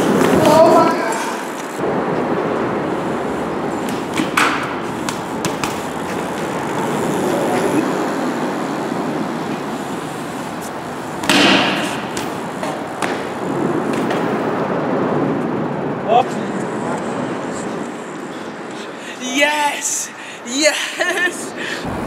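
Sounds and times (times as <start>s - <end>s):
bike tyres rolling on concrete: 0.0s - 19.1s
loud bike impact: 1.8s - 7.8s, 9.8s - 14.7s.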